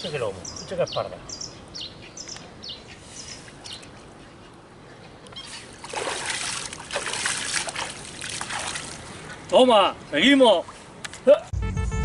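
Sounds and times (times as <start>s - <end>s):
fish tail splashing water: 5.7s - 9.1s.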